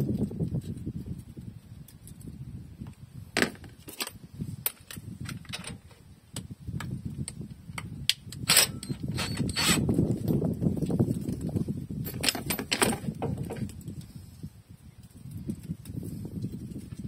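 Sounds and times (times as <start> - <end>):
metallic clicks and knocks: 12.0 - 13.7.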